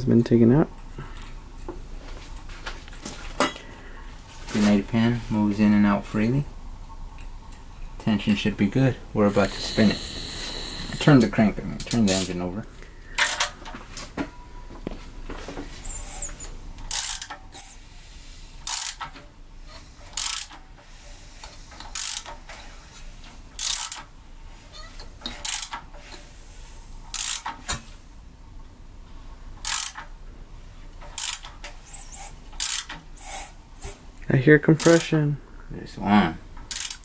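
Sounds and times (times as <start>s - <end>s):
socket ratchet clicking: 15.8s - 17.8s, 18.6s - 19.1s, 20.2s - 20.6s, 21.8s - 22.4s, 23.6s - 24.1s, 25.3s - 25.8s, 27.1s - 27.8s, 29.6s - 30.1s, 31.1s - 34.0s, 34.8s - 35.2s, 36.6s - 37.0s.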